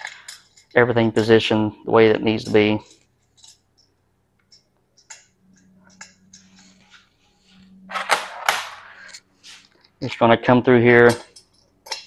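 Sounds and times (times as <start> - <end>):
rustling scrape: 6.5 - 9.8.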